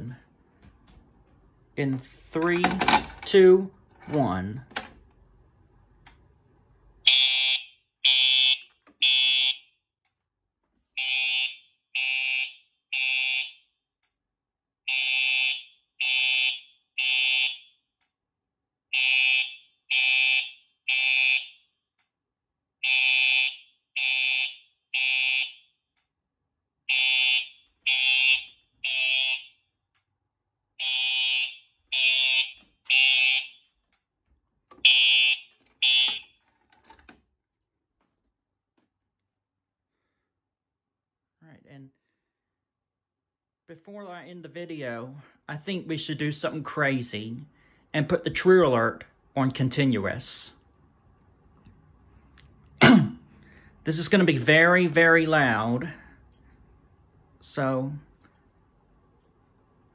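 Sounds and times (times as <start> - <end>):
fire alarm horn blasts: 7.0 - 9.8, 10.9 - 13.8, 14.8 - 17.9, 18.9 - 21.8, 22.8 - 25.8, 26.8 - 29.7, 30.8 - 33.8, 34.8 - 36.4.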